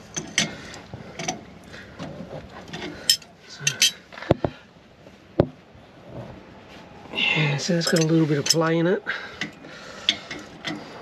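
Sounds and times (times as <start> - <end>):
wrench clinking on metal: 2.7 - 4.0, 7.8 - 8.7.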